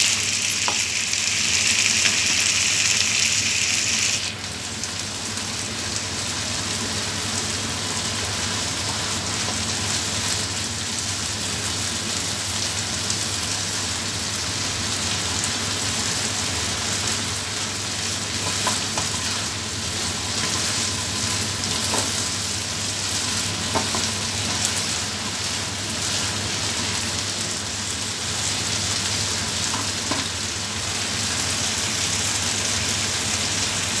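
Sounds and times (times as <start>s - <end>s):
food sizzling in a frying pan: 0.0s - 34.0s
spatula tapping and scraping pan: 23.7s - 24.6s.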